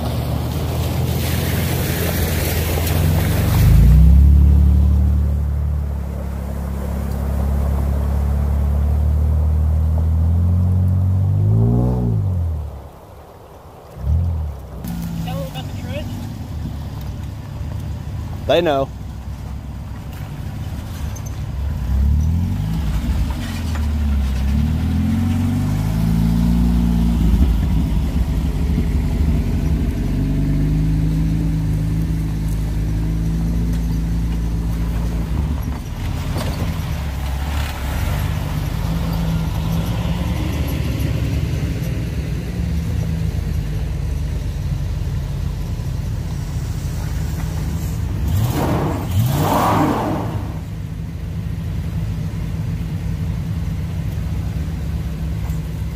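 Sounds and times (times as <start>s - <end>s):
tyres spinning on dirt: 14.5s - 46.4s
second engine revving: 47.0s - 50.8s
engine revving hard: 48.2s - 50.7s.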